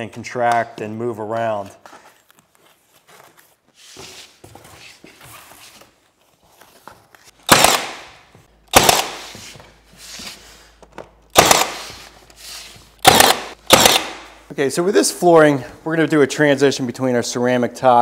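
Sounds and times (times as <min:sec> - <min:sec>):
nail gun bangs: 0:07.5 - 0:09.3, 0:11.3 - 0:11.9, 0:13.0 - 0:14.3.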